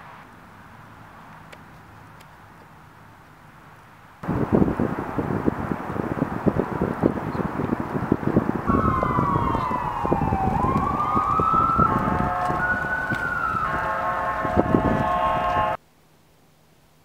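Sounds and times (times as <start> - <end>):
low buffeting noise: 1.8 - 15.8
siren: 8.6 - 15.8.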